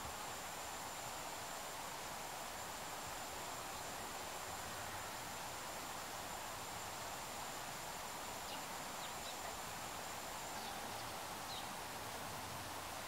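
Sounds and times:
outdoor background noise: 0.0s - 13.0s
faint bird chirps: 8.4s - 9.7s, 10.4s - 11.8s.

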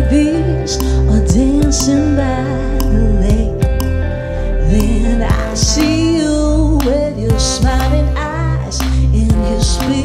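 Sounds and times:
amplified music with bass and drums: 0.0s - 10.0s
woman singing into microphone: 0.0s - 10.0s.

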